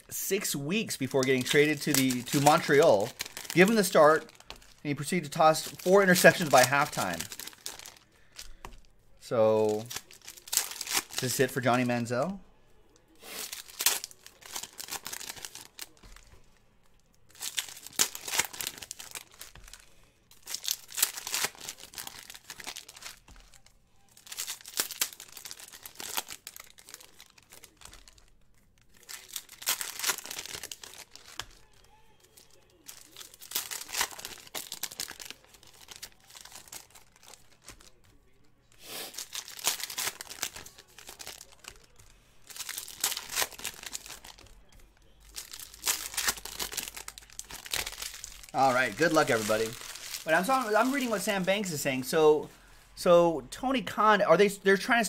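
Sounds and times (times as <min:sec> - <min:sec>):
foil wrappers crinkling and tearing: 0:00.3 - 0:08.9, 0:09.5 - 0:12.4, 0:13.1 - 0:16.5, 0:17.3 - 0:52.2.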